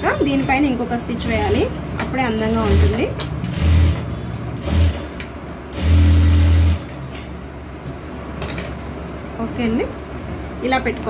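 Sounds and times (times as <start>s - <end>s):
sewing machine running: 1.0s - 7.0s.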